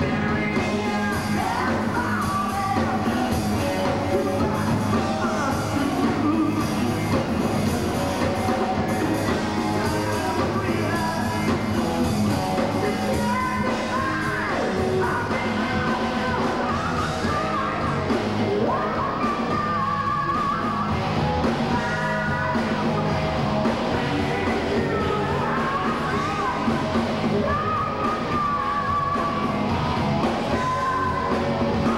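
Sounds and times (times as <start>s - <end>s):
heavy metal band playing: 0.0s - 31.9s.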